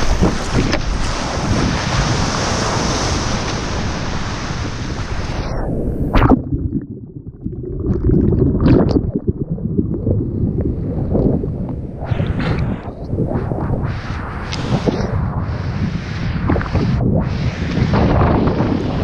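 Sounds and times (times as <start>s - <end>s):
surf rushing: 0.0s - 6.5s, 10.7s - 19.0s
wind buffeting the microphone: 0.0s - 7.1s, 7.8s - 19.0s
low underwater churning: 0.0s - 19.0s.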